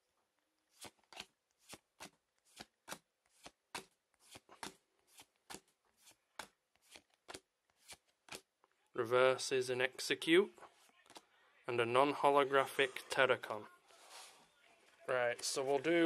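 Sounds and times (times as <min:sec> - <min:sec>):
cards snapping: 0:00.7 - 0:08.5.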